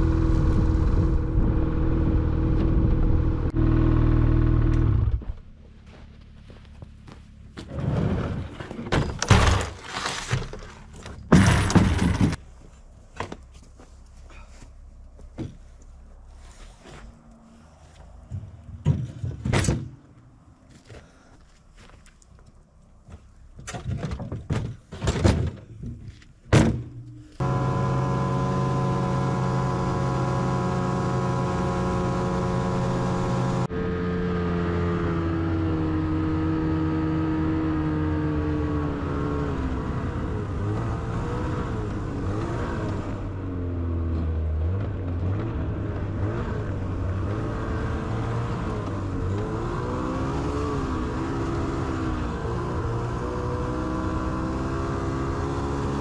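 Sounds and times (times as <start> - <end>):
snowmobile engine running: 0.0 - 5.2, 27.4 - 56.0.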